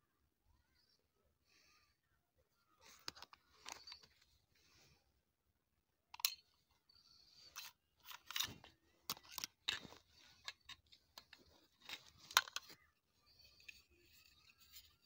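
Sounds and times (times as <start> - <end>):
metal clicks and scrapes: 7.4 - 15.0.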